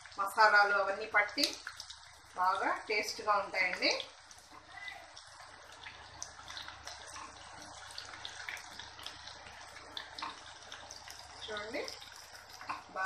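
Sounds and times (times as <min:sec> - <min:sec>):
food deep-frying in hot oil: 0:00.0 - 0:13.0.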